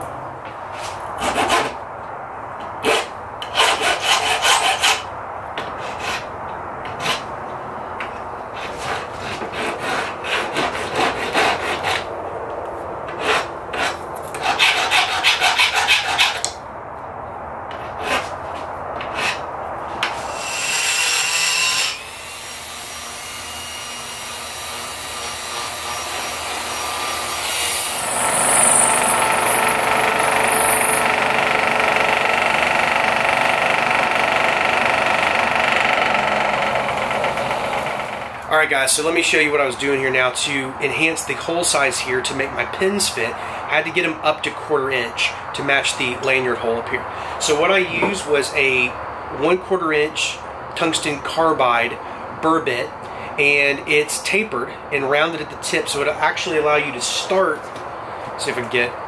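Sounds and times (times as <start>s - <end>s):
hand file rasping on steel: 2.9s - 5.0s, 13.2s - 16.5s
drill press motor running: 28.1s - 38.4s.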